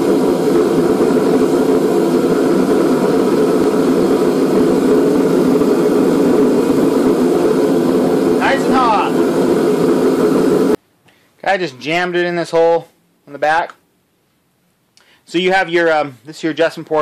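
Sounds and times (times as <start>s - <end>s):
forced-air heater rushing: 0.0s - 10.8s.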